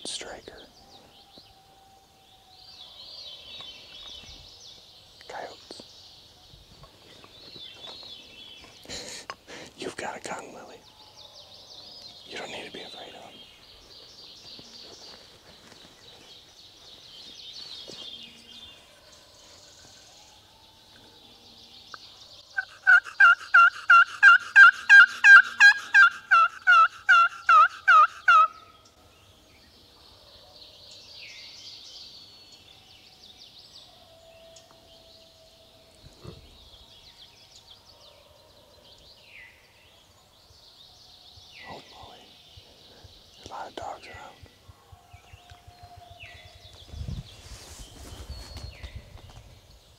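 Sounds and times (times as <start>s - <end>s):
turkey yelping: 22.6s - 28.6s.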